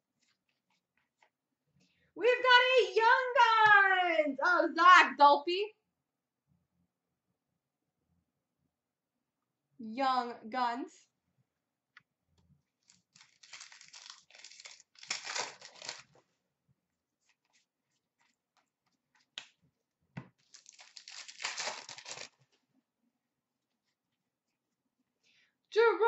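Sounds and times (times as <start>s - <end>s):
card pack wrappers tearing: 12.9s - 16.1s, 20.4s - 22.4s.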